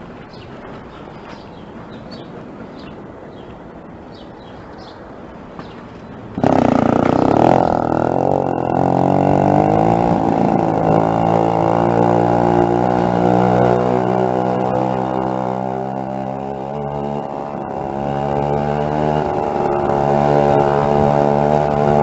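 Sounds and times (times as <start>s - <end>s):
road and wind noise: 0.0s - 22.0s
small bicycle engine running: 6.4s - 22.0s.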